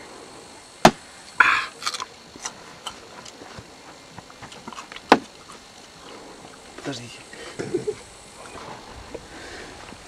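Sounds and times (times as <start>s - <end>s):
person exhaling: 1.4s - 1.8s, 9.2s - 9.9s.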